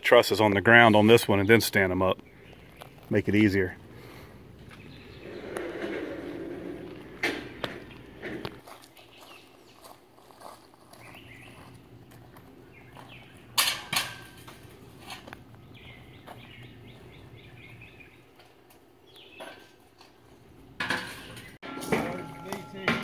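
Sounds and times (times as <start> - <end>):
birds chirping: 0.0 - 23.0.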